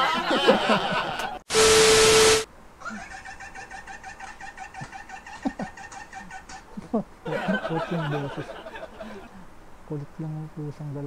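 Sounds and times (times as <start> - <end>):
people laughing: 0.0 - 1.4, 2.8 - 9.4
steady beep: 1.5 - 2.4
static hiss: 1.5 - 2.8.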